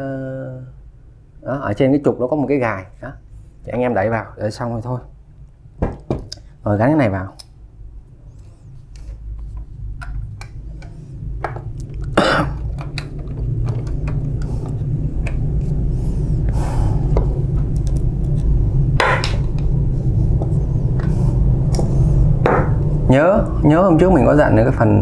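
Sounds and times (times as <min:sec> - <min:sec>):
steady low hum: 0:00.0 - 0:25.0
plastic parts clicking: 0:10.0 - 0:15.4.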